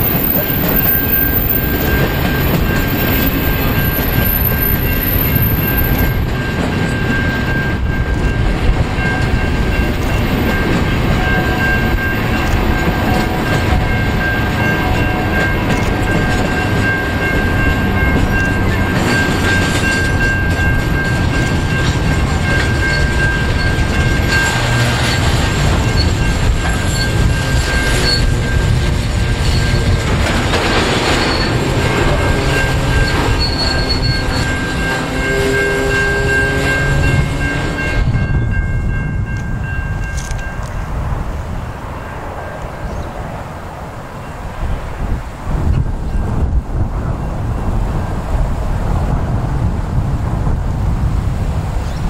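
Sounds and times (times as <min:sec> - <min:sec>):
high-pitched wheel squeal: 0:00.0 - 0:06.3, 0:22.8 - 0:30.0, 0:31.0 - 0:37.5
train wheels rumbling on rails: 0:00.0 - 0:52.0.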